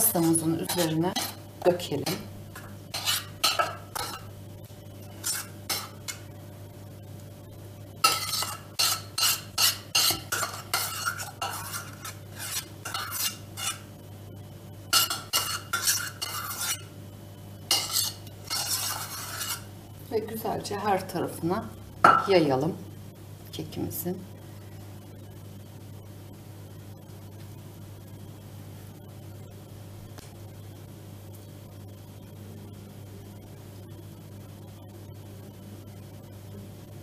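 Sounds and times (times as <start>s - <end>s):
faint steady hum: 0.0s - 37.0s
metal spoon scraping container: 2.9s - 4.2s, 5.2s - 6.0s, 8.1s - 13.8s, 15.0s - 16.9s, 17.7s - 19.7s.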